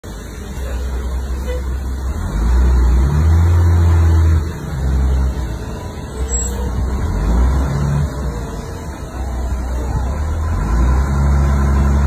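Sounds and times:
bus engine rumbling: 0.0s - 12.0s.

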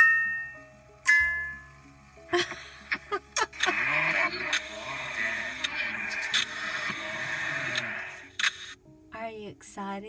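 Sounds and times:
soft musical drone: 0.0s - 10.0s
short scratchy bursts: 3.7s - 8.8s.

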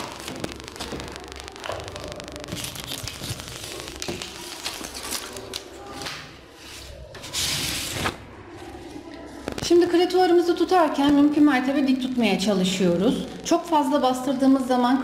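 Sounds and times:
paper rustling: 2.5s - 9.6s.

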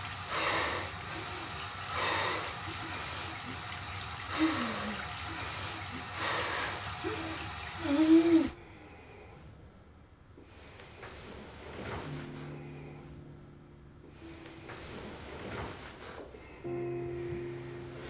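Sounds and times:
heavy gasping breaths: 0.3s - 3.5s.

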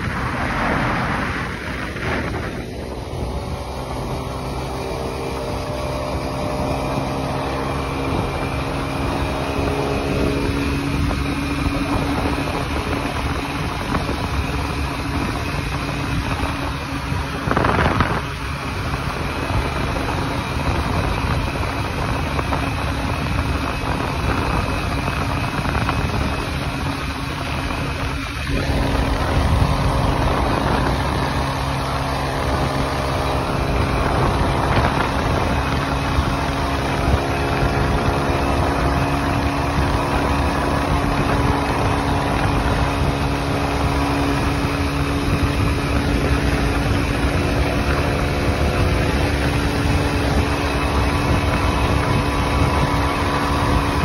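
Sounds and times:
short loud whoosh: 0.0s - 21.8s
motorcycle engine cruising: 0.0s - 54.0s
tyre noise on road: 0.0s - 54.0s
wind rushing over microphone: 0.0s - 54.0s.

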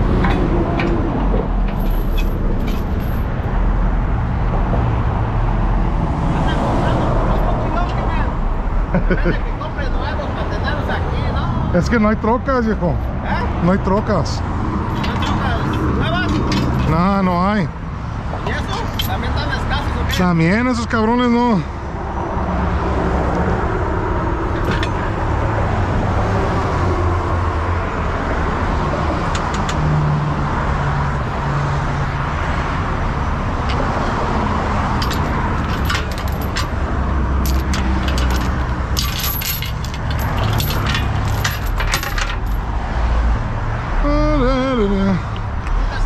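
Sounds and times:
metal chains clinking and rattling: 0.0s - 3.6s, 14.7s - 17.6s, 18.4s - 20.3s, 24.4s - 25.6s, 34.8s - 42.7s
engines and freeway traffic rumble: 0.0s - 46.0s.

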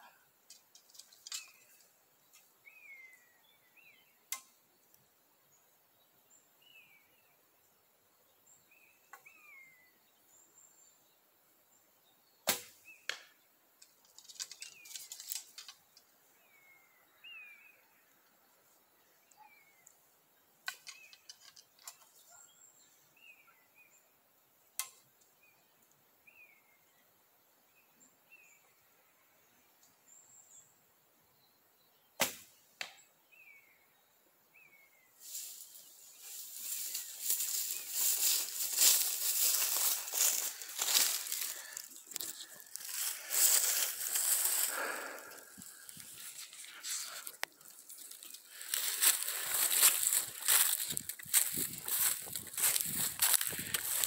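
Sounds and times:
faint bird chirps: 0.0s - 24.2s.

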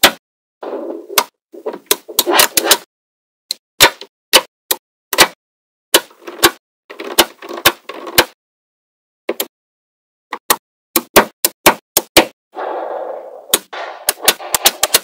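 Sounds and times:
magnetic balls clicking: 13.5s - 15.0s.

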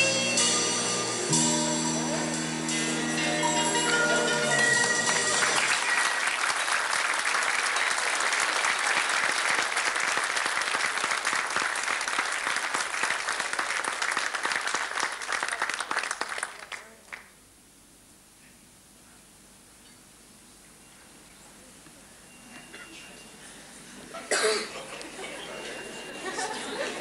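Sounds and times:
audience applauding: 3.8s - 17.3s.

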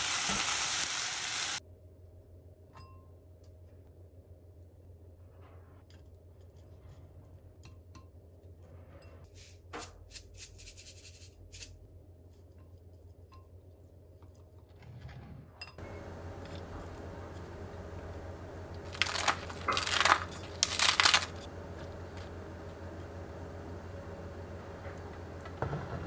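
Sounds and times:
steady hiss: 0.0s - 1.6s.

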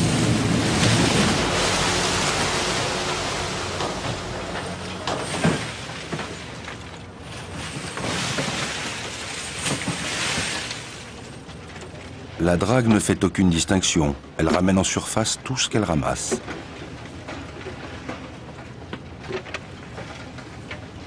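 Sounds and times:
dredge rushing and rumbling: 0.0s - 21.0s.

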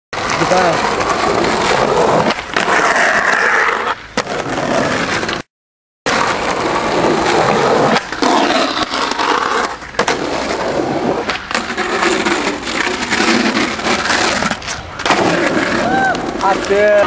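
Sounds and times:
skateboard wheels rolling on concrete: 0.1s - 5.5s, 6.1s - 17.0s
skateboard clacking: 6.1s - 17.0s.

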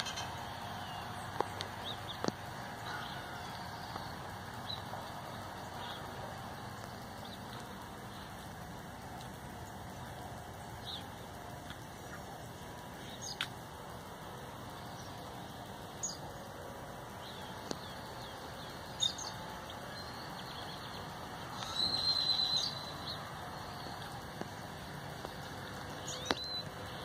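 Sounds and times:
trilled bird call: 0.0s - 8.6s, 14.8s - 27.0s
birds chirping: 0.0s - 27.0s
faint background hiss: 0.0s - 27.0s.

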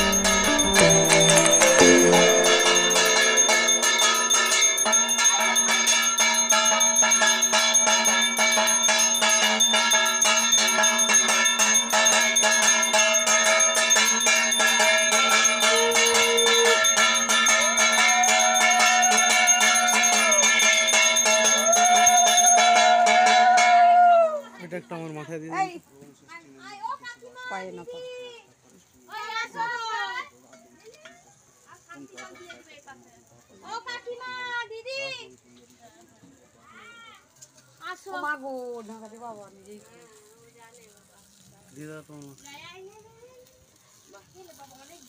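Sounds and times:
held higher tones sagging in pitch: 0.0s - 4.9s
hand bell rung rapidly: 0.0s - 23.8s.

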